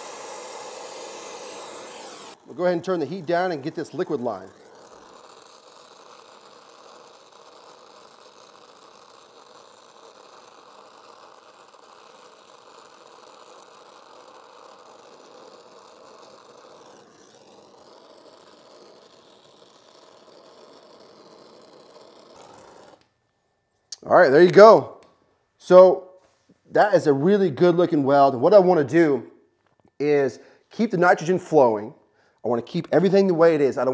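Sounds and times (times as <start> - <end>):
torch flame hissing: 0.0 - 23.1.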